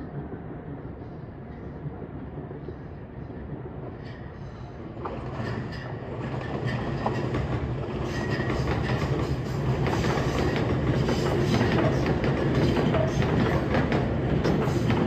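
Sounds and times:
electric train rumble: 0.0s - 15.0s
train wheel clicks: 5.0s - 15.0s.

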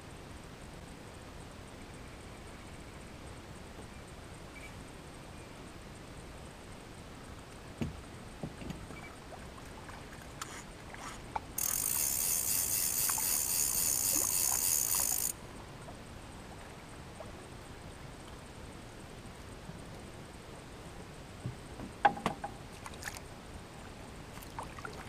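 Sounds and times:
fishing reel whirring: 10.4s - 15.4s.

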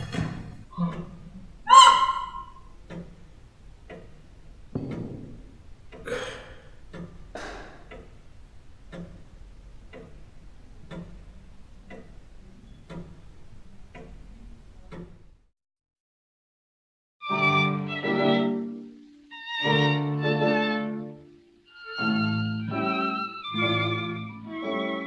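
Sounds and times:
clock ticking: 0.0s - 15.4s.

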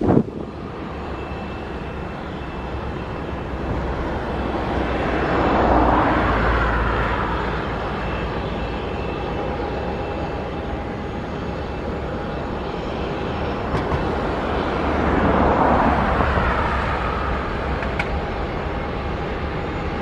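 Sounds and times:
faint high engine whine: 0.0s - 20.0s
jet engines droning: 0.0s - 20.0s.

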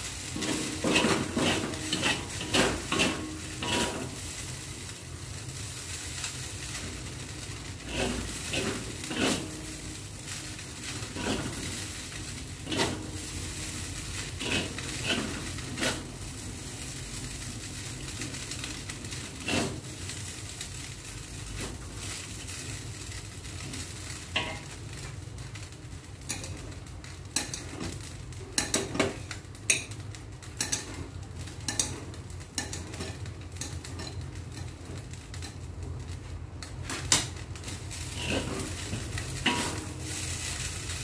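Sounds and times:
noodles sizzling in a wok: 0.0s - 41.0s
metal spatula knocking wok: 28.5s - 30.0s, 31.6s - 34.8s.

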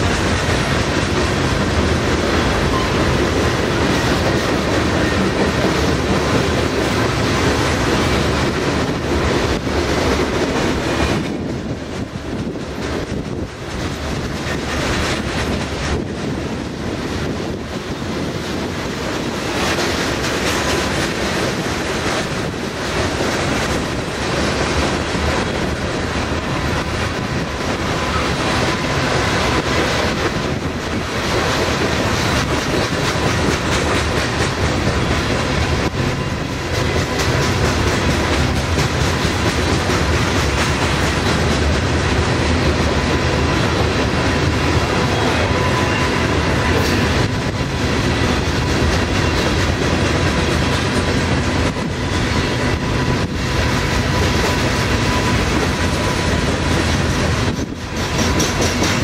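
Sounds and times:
train wheels clattering on rails: 0.0s - 59.0s.

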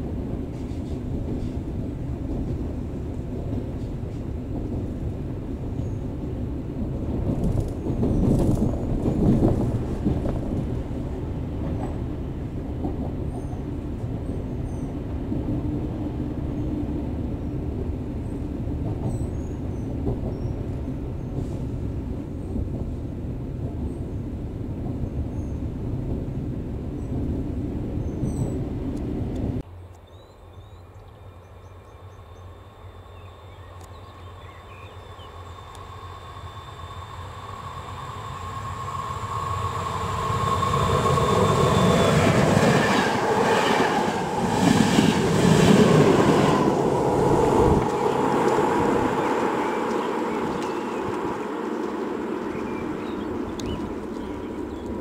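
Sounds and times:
electric train humming: 0.0s - 25.1s, 31.3s - 55.0s
train rumble from on board: 0.0s - 55.0s
birds chirping: 30.0s - 35.7s, 46.4s - 55.0s.

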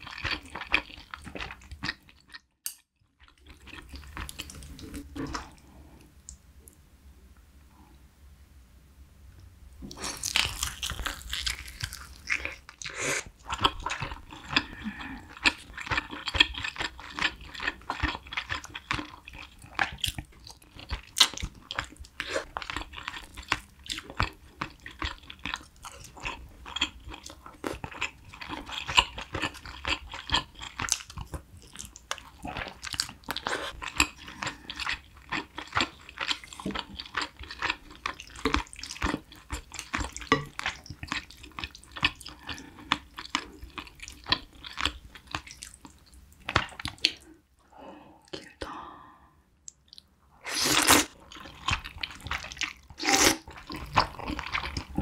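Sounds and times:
person chewing and biting: 9.9s - 47.2s, 49.7s - 55.0s.

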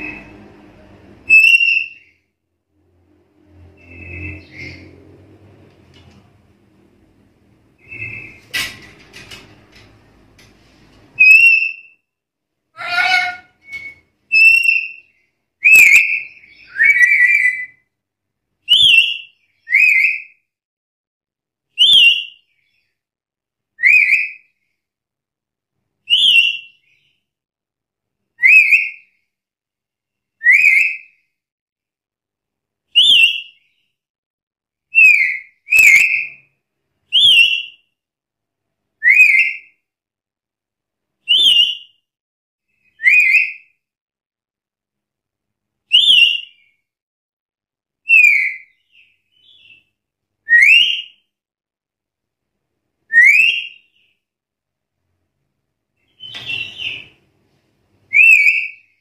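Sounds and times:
parrot whistled calls: 1.3s - 2.1s, 11.2s - 12.0s, 12.8s - 15.0s, 15.6s - 17.8s, 34.9s - 36.4s, 37.1s - 37.8s, 39.0s - 39.7s, 41.3s - 41.9s, 43.0s - 43.7s, 45.9s - 46.6s, 48.1s - 48.8s, 50.5s - 51.2s, 53.1s - 54.0s, 58.1s - 58.9s.

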